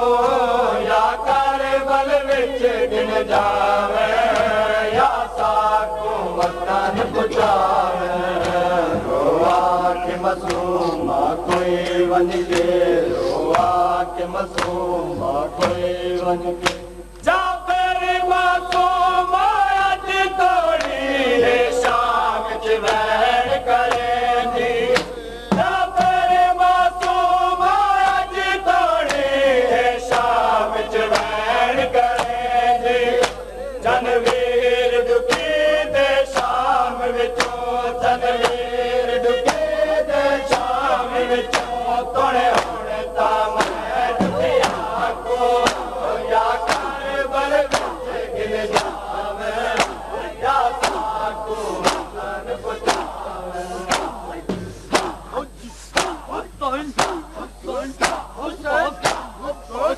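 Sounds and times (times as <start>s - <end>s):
men chanting a lament: 0.0s - 59.9s
chest-beating slaps: 10.4s - 13.9s, 14.5s - 14.9s, 16.6s - 17.2s, 24.9s - 26.2s, 31.1s - 31.4s, 33.2s - 33.5s, 34.2s - 34.5s, 35.3s - 35.6s, 37.4s - 37.6s, 38.3s - 38.7s, 39.4s - 39.7s, 41.5s - 41.8s, 42.5s - 42.8s, 43.6s - 46.0s, 46.6s - 49.1s, 49.7s - 50.1s, 50.7s - 51.2s, 51.8s - 53.2s, 53.8s - 59.5s.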